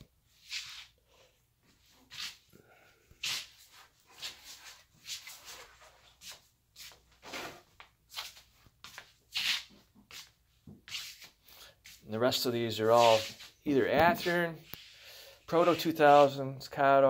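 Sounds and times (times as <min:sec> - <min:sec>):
footsteps on hard floor: 0:13.0 - 0:14.9.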